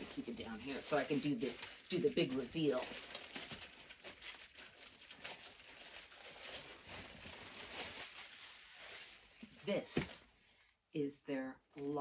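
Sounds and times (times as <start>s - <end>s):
packaging rustling and crinkling: 0.0s - 10.1s.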